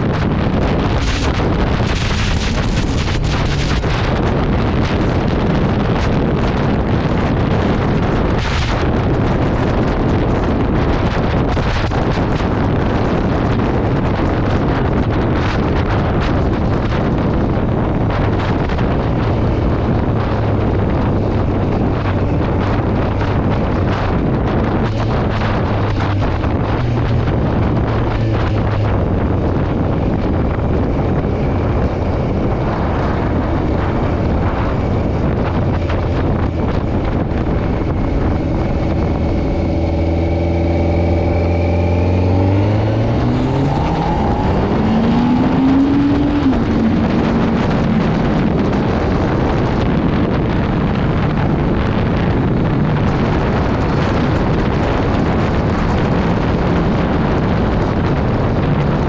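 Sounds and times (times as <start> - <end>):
motorcycle engine revving: 0.0 - 59.0
wind rushing over microphone: 0.0 - 59.0.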